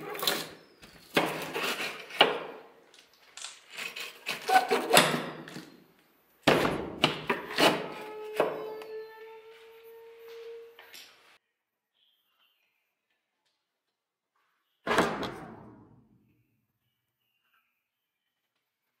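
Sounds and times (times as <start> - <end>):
sharp knocks and scrapes: 0.0 - 2.6.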